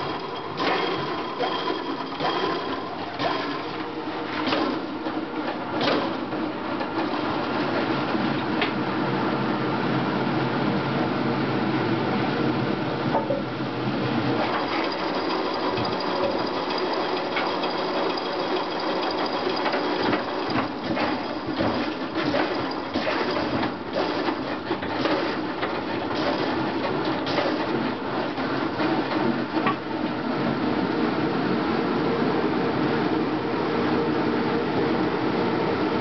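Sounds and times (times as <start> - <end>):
lathe mechanical rattle: 0.0 - 5.0, 14.3 - 29.8.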